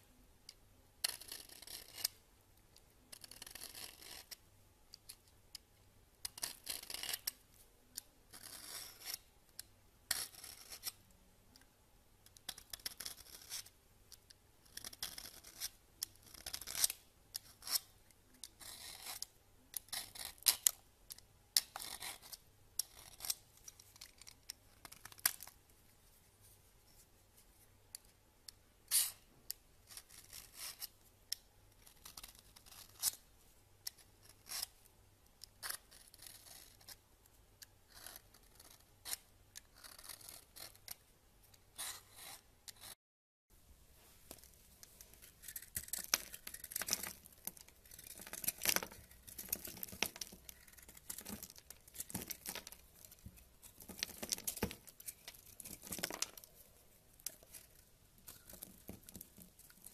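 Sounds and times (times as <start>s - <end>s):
peeler scraping soap: 45.2s - 56.4s.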